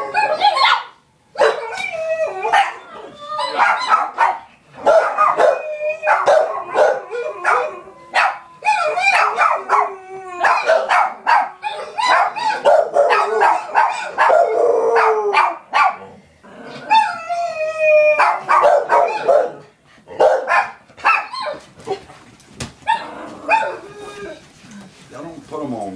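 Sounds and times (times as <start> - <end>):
dog howling: 0.0 - 0.7, 1.4 - 4.2, 4.8 - 15.6, 16.6 - 19.7, 22.8 - 24.4
dog barking and yipping: 0.0 - 16.1, 18.2 - 21.7, 22.8 - 23.9.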